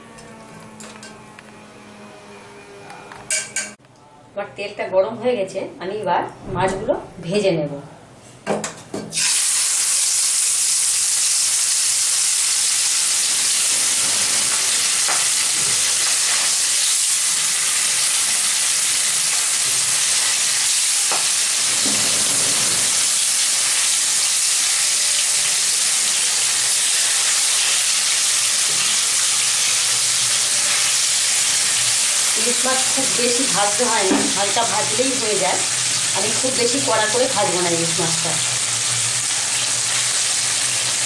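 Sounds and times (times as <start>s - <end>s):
fish sizzling in hot oil: 9.1s - 41.0s.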